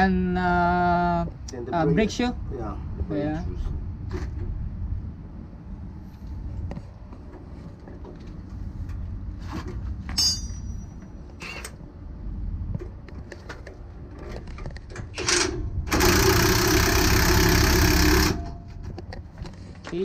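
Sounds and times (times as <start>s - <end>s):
metallic tool clinks: 10.2s - 11.0s.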